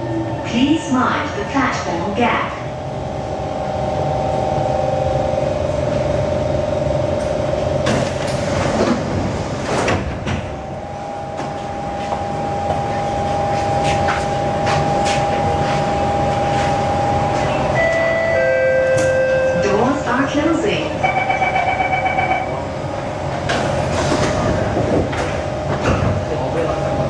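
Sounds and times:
train equipment hum: 0.0s - 27.0s
sliding doors opening: 7.1s - 10.6s, 23.4s - 26.2s.

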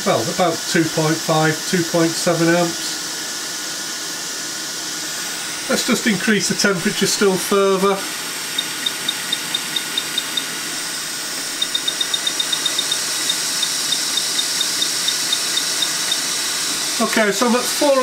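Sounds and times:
hot air station hissing: 0.0s - 18.0s.

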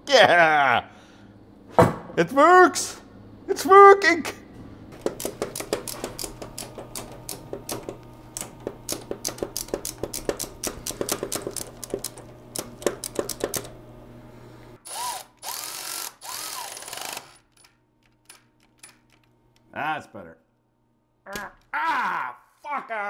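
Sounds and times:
steady low hum: 0.0s - 16.6s
screwdriver clicking: 5.0s - 13.8s
cordless drill motor whine: 14.8s - 17.3s.

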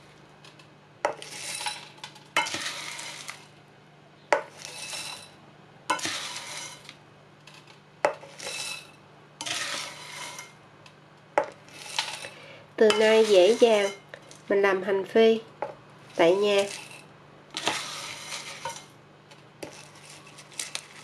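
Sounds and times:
crispy pieces rustling into jar: 0.0s - 3.6s, 16.0s - 21.0s.

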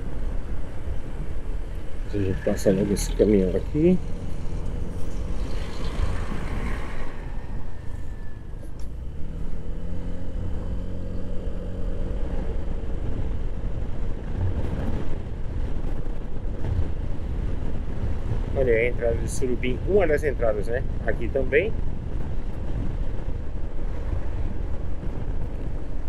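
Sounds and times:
truck passing: 0.0s - 13.5s
road noise: 0.0s - 26.0s
wind noise: 0.0s - 26.0s.

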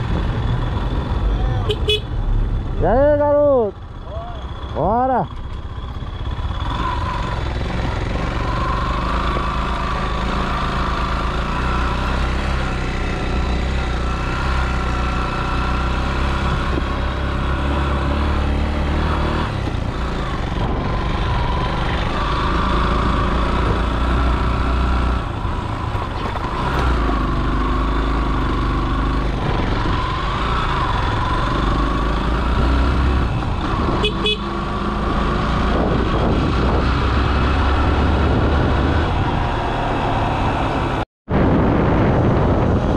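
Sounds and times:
motorcycle engine running: 0.0s - 39.3s
wind noise on microphone: 32.9s - 34.2s, 34.9s - 39.6s, 40.8s - 42.9s.

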